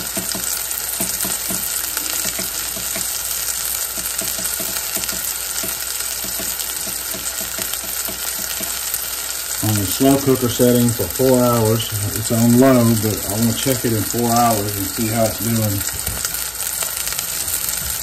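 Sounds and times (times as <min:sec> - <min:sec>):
small crackling pops: 0:00.0 - 0:11.1
oil and fat sizzling: 0:00.0 - 0:18.0.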